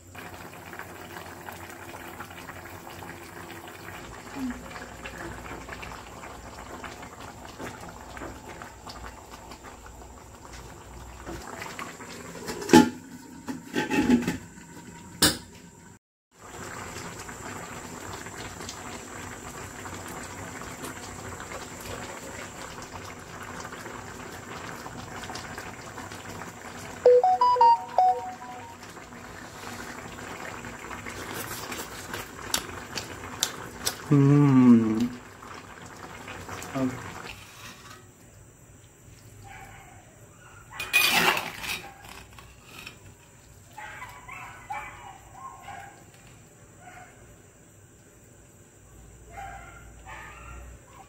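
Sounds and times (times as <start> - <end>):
stew bubbling in a pan: 0.0 - 15.2, 15.8 - 27.0, 28.7 - 39.4, 42.0 - 49.2
pitched tones: 27.1 - 28.8.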